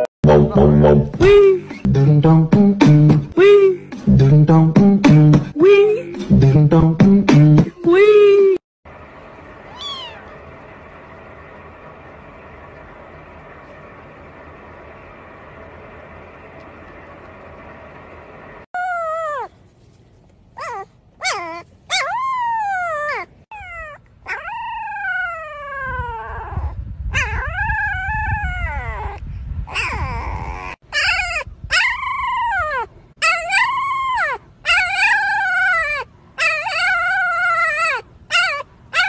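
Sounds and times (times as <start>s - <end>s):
wind rumble on microphone: 24.9s - 32.8s
puppies howling: 31.0s - 39.0s.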